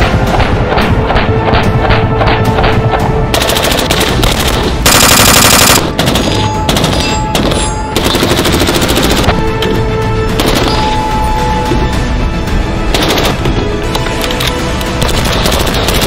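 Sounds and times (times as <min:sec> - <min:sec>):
rifle firing rapid shots: 0:00.3 - 0:09.3, 0:12.9 - 0:13.4, 0:15.0 - 0:16.0.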